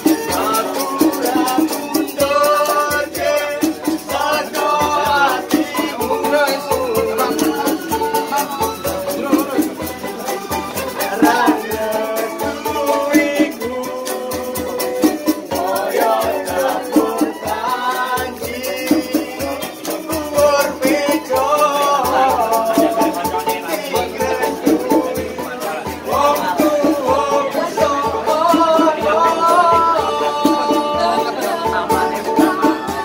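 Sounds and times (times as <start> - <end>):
person singing: 0.0 - 33.0
shaker-like percussion: 0.0 - 33.0.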